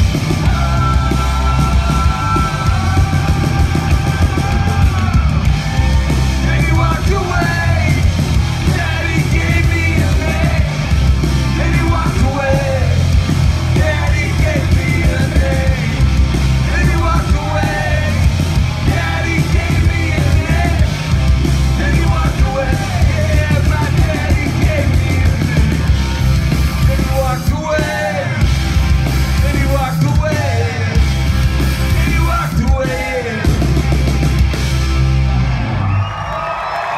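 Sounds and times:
live rock band playing: 0:00.0 - 0:36.9
voices singing and yelling: 0:00.0 - 0:36.9.

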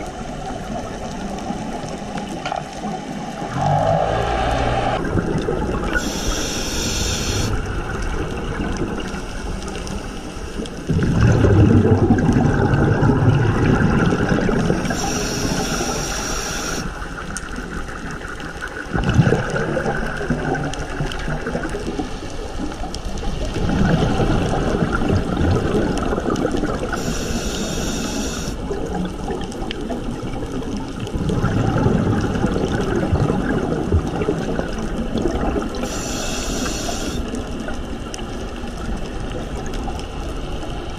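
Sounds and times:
bubbling exhales: 0:03.4 - 0:17.0, 0:18.9 - 0:22.0, 0:31.1 - 0:37.6
regulator hissing inhales: 0:06.0 - 0:07.6, 0:14.8 - 0:17.0, 0:27.0 - 0:28.6, 0:35.8 - 0:37.3.

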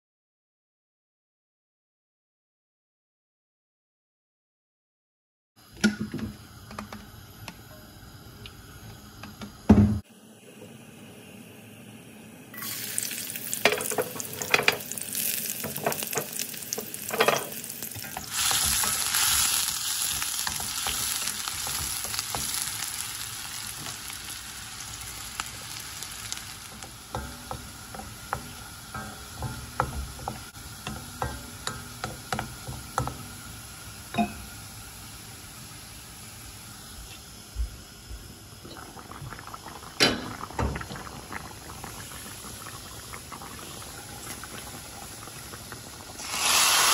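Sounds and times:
onion and garlic frying in oil: 0:12.6 - 0:46.9.

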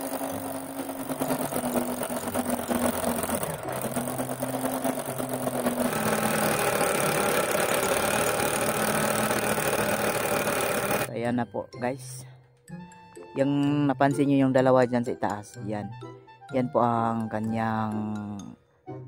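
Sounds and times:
jackhammer chipping concrete: 0:00.0 - 0:11.1.

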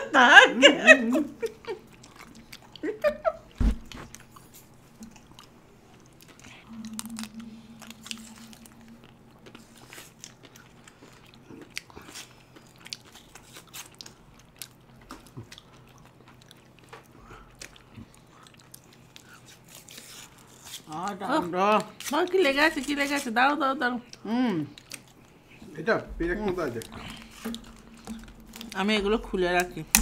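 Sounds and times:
thump: 0:03.6 - 0:04.0
ice cream bars crunching: 0:04.0 - 0:23.3.

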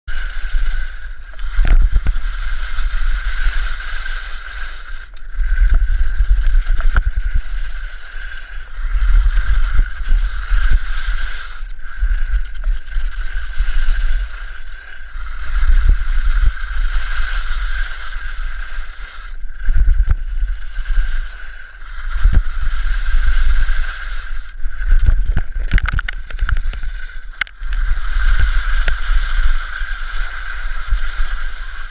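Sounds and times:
skis scraping over snow: 0:00.1 - 0:31.9
wind buffeting microphone: 0:15.2 - 0:31.9.

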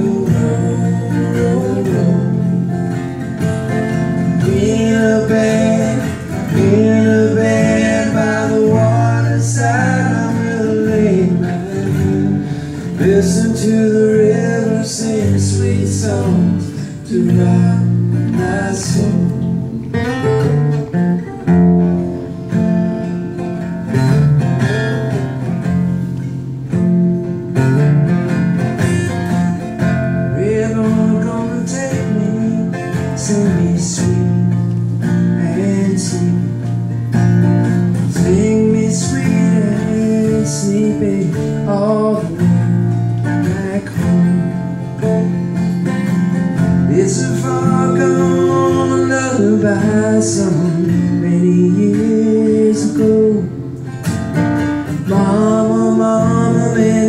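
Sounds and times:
man singing: 0:00.0 - 0:20.7, 0:29.5 - 0:37.0, 0:37.9 - 0:45.4, 0:46.6 - 0:53.8, 0:54.8 - 0:57.0
acoustic guitars strummed: 0:00.0 - 0:57.0.

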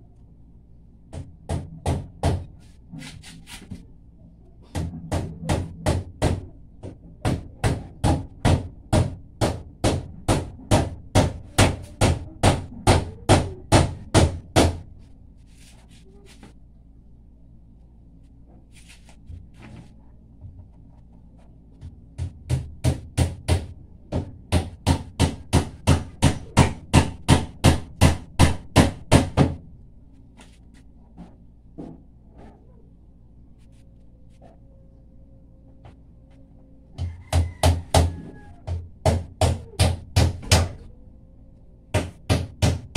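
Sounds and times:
hammer nailing wooden boards: 0:07.2 - 0:14.8, 0:22.2 - 0:29.6, 0:37.0 - 0:40.8, 0:42.0 - 0:42.9.

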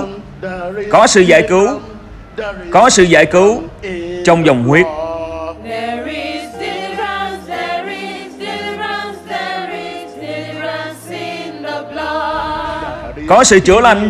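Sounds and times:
choir singing: 0:04.9 - 0:13.5.

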